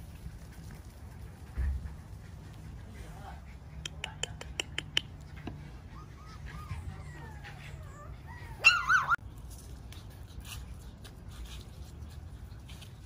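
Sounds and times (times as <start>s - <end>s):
puppy whimpering and whining: 5.8s - 9.2s.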